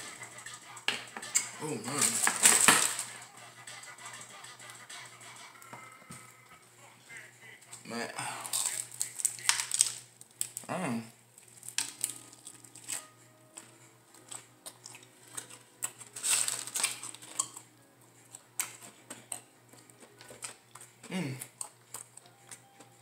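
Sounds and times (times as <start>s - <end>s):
chewing fried chicken: 0.0s - 10.7s, 11.3s - 23.0s.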